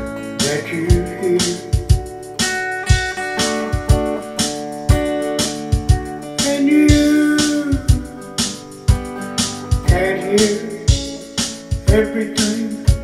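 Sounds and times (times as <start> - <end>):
strummed guitar: 0.0 - 13.0.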